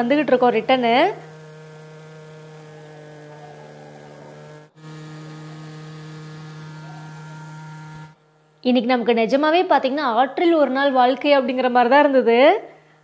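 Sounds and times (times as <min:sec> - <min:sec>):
outboard motor running: 0:00.0 - 0:09.4.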